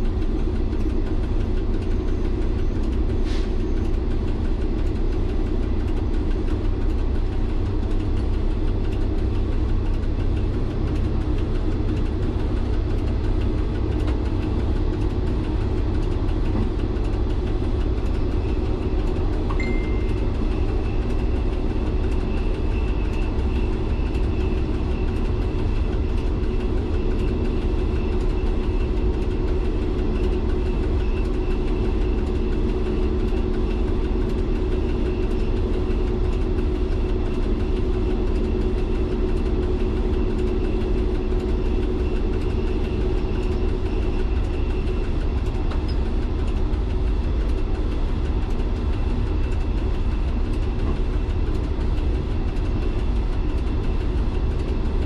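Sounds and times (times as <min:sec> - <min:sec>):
diesel engine low drone: 0:00.0 - 0:55.0
thin high whine: 0:19.5 - 0:20.8.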